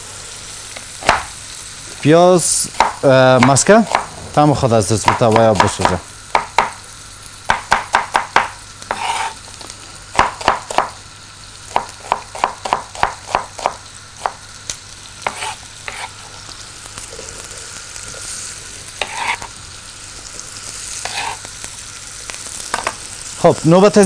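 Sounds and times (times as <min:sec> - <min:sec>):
butter sizzling in a pot: 0:00.0 - 0:24.0
knife chopping on wooden board: 0:01.0 - 0:01.3, 0:02.8 - 0:04.1, 0:05.0 - 0:06.8, 0:07.5 - 0:09.4, 0:10.2 - 0:10.9, 0:11.7 - 0:14.4, 0:15.2 - 0:16.1
onion rustling into pot: 0:08.9 - 0:10.1, 0:15.0 - 0:23.7.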